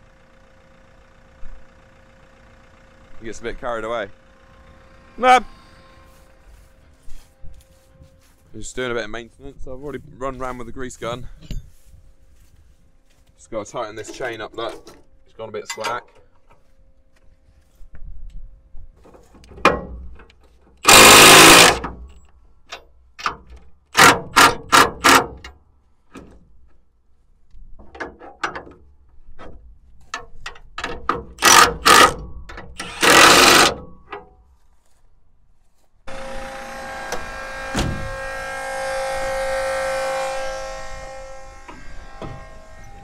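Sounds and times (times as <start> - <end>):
cordless power tool bursts: 20.8 - 22.0, 24.0 - 25.4, 31.4 - 32.2, 32.8 - 33.9, 36.1 - 43.0.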